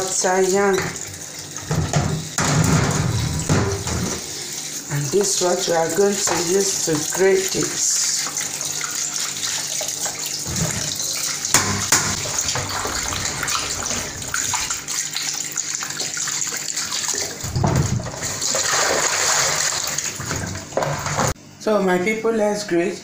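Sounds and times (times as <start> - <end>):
water splashing: 5.2 - 21.4.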